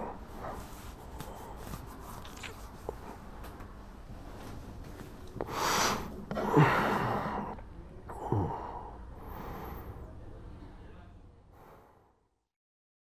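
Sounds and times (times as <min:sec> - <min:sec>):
person gasping: 0:05.4 - 0:10.0.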